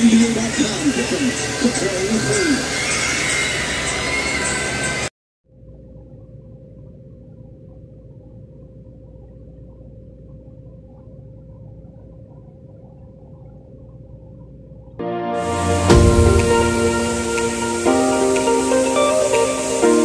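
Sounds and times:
steady humming tone: 0.0s - 20.0s
low rumble: 9.0s - 17.9s.

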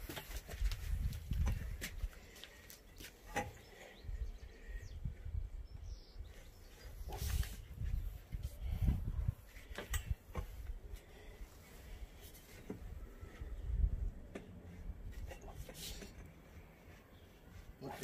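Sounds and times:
metal tubes knocking and scraping: 14.2s - 17.0s.

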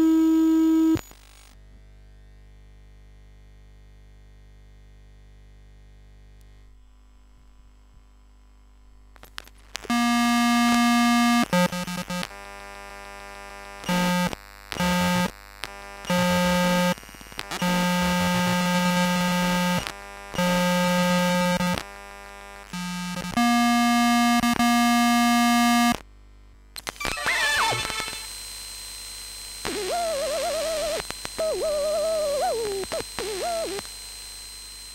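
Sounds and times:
electric interference buzz: 9.6s - 26.0s, 26.8s - 34.9s
crackles and clicks: 26.8s - 28.3s, 29.6s - 34.0s.

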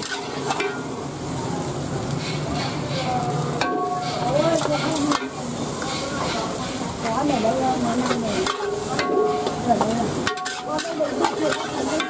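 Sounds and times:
metal ladle scraping a wok: 0.0s - 1.1s, 2.0s - 12.0s
food sizzling: 0.0s - 12.0s
voices talking: 0.9s - 12.0s
utensil clatters: 3.6s - 12.0s.

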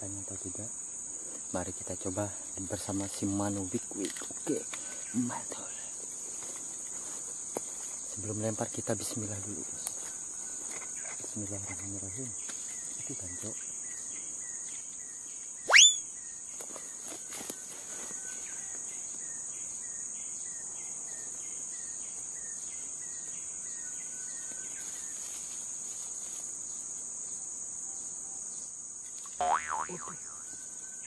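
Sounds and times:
insects shrilling: 0.0s - 14.3s, 15.0s - 18.4s, 29.0s - 31.0s
rising whistle: 15.7s - 16.0s
short chirps: 15.7s - 16.0s.

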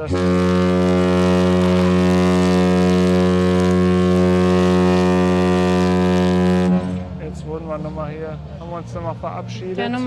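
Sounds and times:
ship horn low blast: 0.0s - 8.9s.

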